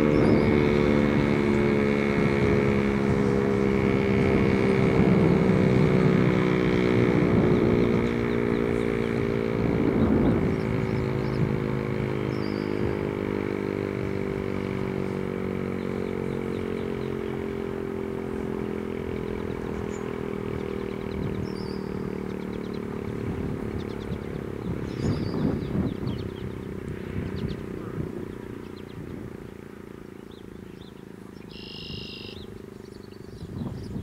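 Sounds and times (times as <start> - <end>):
warning siren steady tone: 0.0 - 26.6, 31.5 - 32.5
faint bird chirps: 12.3 - 13.0, 19.4 - 23.0, 30.1 - 34.0.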